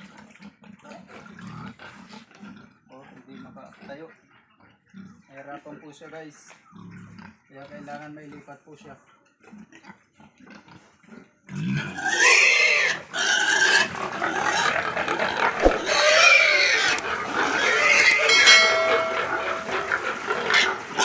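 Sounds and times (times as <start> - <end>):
pig squealing: 9.5 - 21.0.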